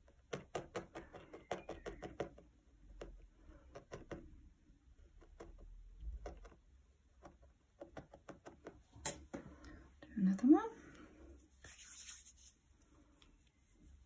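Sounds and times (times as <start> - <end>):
felting needle poking: 0.0 - 9.5.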